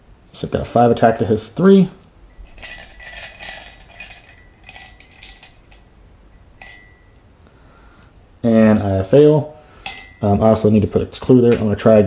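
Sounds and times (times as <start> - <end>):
mug ringing: 2.3 - 7.6, 9.7 - 10.8
tokens clinking in a ceramic mug: 2.4 - 7.2, 9.8 - 10.3.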